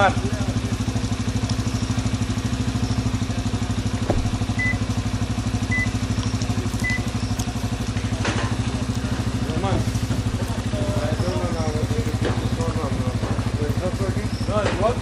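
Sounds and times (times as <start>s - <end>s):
small engine idling: 0.0s - 15.0s
short high beeps: 4.6s - 4.8s, 5.7s - 6.0s, 6.8s - 7.3s.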